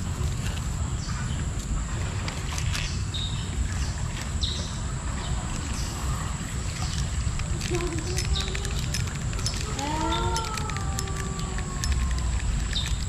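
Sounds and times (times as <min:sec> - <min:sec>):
faint clicks: 0:06.7 - 0:13.0.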